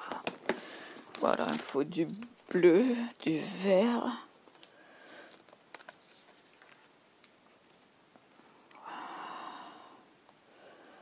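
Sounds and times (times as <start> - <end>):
rustling: 4.3 - 8.8.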